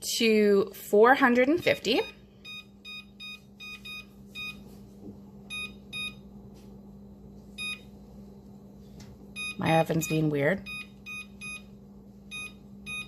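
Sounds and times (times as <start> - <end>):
oven control panel beeps: 1.6 - 4.6, 5.5 - 6.3, 7.6 - 7.9, 9.3 - 13.0.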